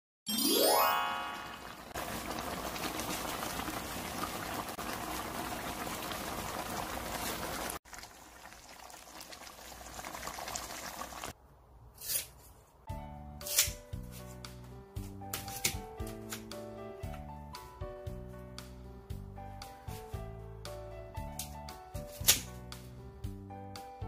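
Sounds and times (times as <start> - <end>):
sauce bubbling in a pan: 1.8 - 11.4.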